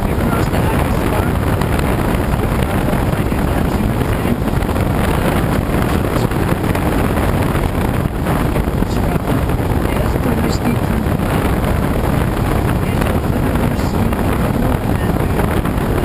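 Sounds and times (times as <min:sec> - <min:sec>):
wind noise on microphone: 0:00.0 - 0:16.0.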